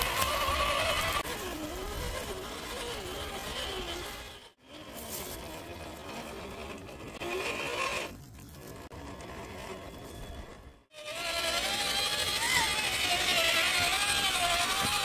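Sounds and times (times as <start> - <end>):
rc car motor whining: 0.0 - 15.0.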